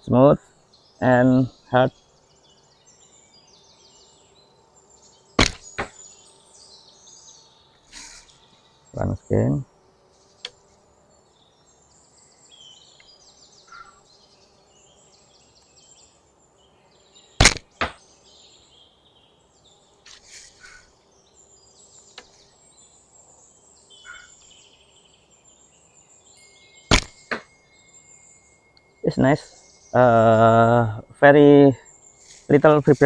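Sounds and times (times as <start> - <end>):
birds chirping: 0.0 - 33.0
arrow hitting target: 5.4 - 6.0, 17.4 - 18.0, 26.9 - 27.5
bowstring snap on release: 17.4 - 18.0, 26.9 - 27.5.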